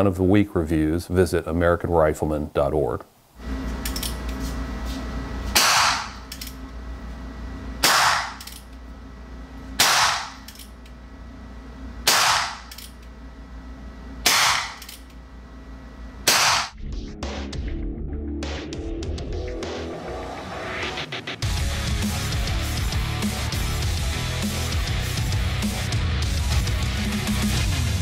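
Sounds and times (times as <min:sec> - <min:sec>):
revolver shots: 0:05.6 - 0:06.2.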